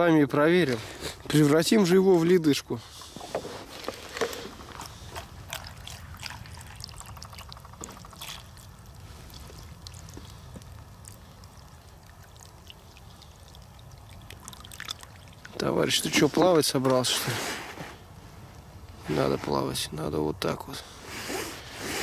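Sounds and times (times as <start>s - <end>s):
water pouring and trickling: 3.7s - 17.3s.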